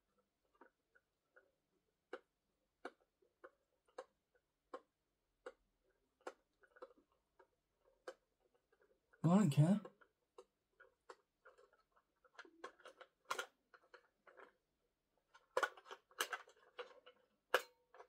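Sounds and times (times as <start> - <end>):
plastic parts clicking: 9.9 - 14.6, 15.2 - 18.0.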